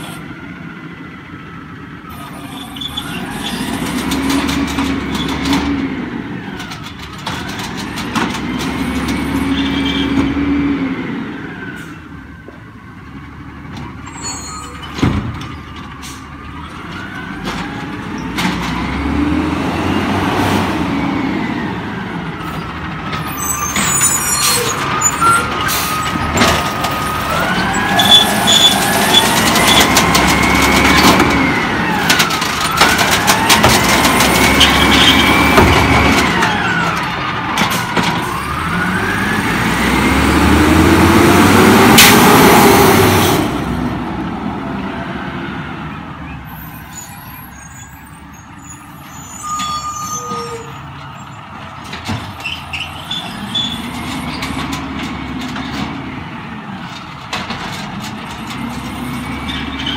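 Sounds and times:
truck engine revving: 2.1 - 11.6, 16.6 - 46.2.

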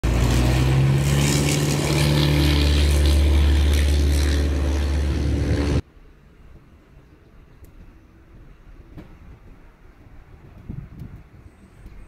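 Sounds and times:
engine drone: 0.0 - 5.9.

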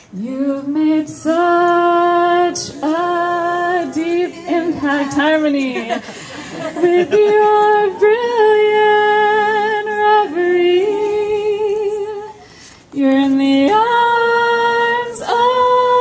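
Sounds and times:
woman singing unaccompanied: 0.1 - 6.0, 6.6 - 16.0.

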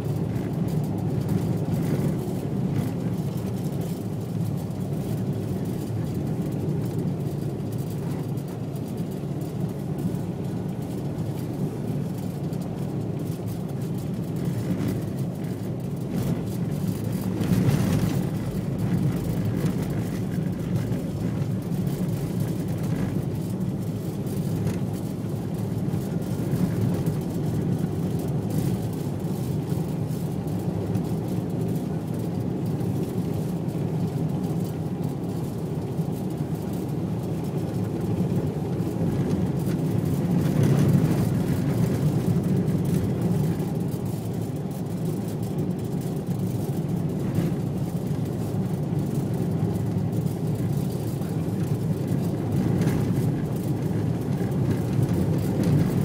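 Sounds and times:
car tyres and engine rumbling: 0.0 - 56.0.

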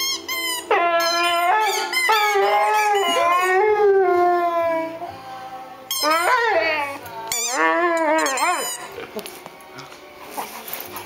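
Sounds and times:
dog howling: 0.6 - 5.1, 6.0 - 8.9.

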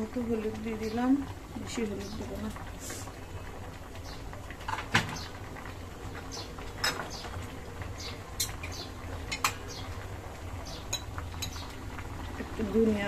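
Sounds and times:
pot boiling vigorously: 0.0 - 13.0.

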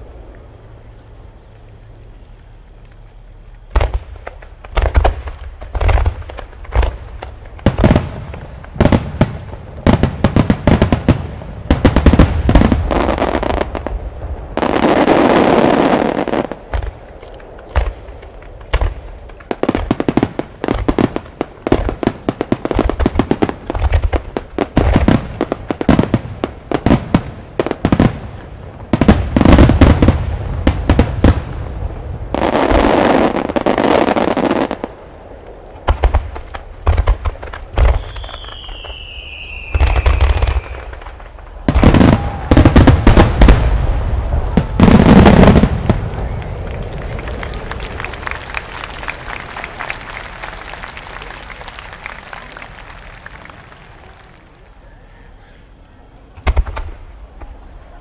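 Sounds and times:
rushing crackling noise: 0.0 - 55.4.

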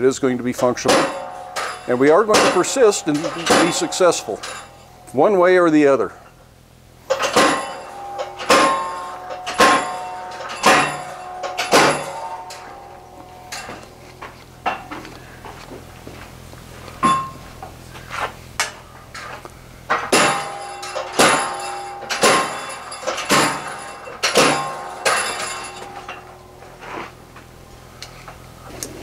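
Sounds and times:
hammer blows on hot steel: 0.8 - 5.4.

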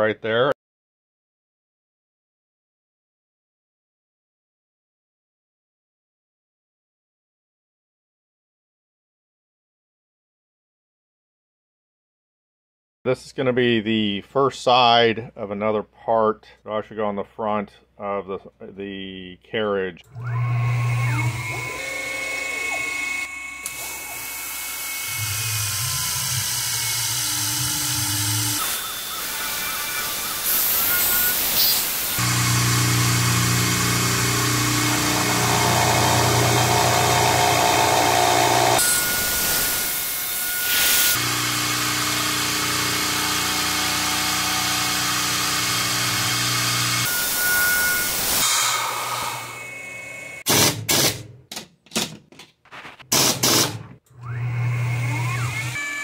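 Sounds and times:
milling machine spindle whine: 20.1 - 50.4, 54.2 - 56.0.

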